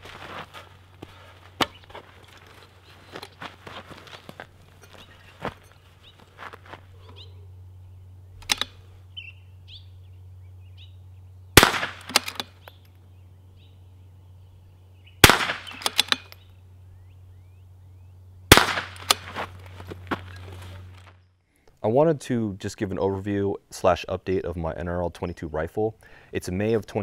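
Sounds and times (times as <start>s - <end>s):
rifle bolt clicks: 8.4s - 8.8s, 11.9s - 12.6s
rifle shots: 11.6s - 12.4s, 15.2s - 16.2s, 18.5s - 19.3s.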